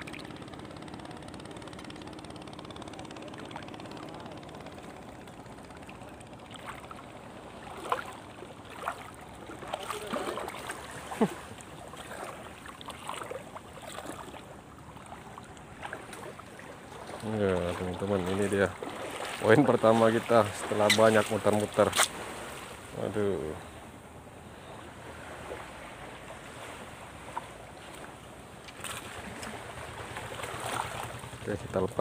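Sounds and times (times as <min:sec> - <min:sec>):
engine hum: 0:00.0 - 0:32.0
water lapping against boat: 0:00.0 - 0:32.0
sharp splashes or knocks: 0:07.7 - 0:14.4, 0:18.2 - 0:22.6, 0:28.7 - 0:31.4.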